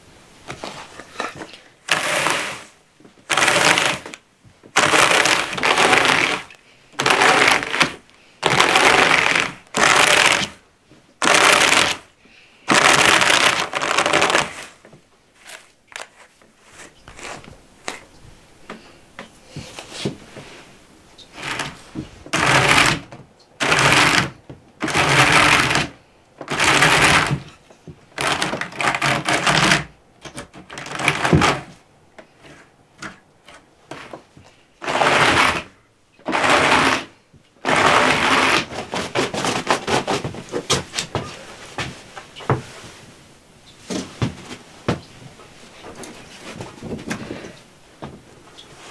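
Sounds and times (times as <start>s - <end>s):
hand carders brushing wool: 0.6s - 4.2s, 4.8s - 10.6s, 11.2s - 12.1s, 12.7s - 14.8s, 15.4s - 18.0s, 34.8s - 43.1s.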